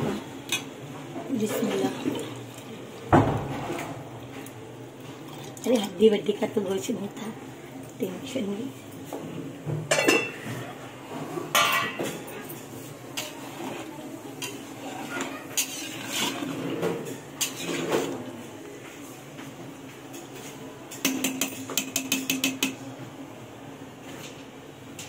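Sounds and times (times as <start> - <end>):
metal spoon clinking on pot: 21.0 - 22.8.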